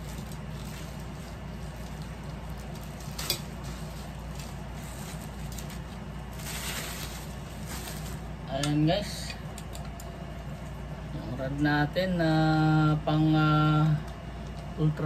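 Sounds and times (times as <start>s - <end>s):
plastic packaging crinkling: 0.0s - 8.7s.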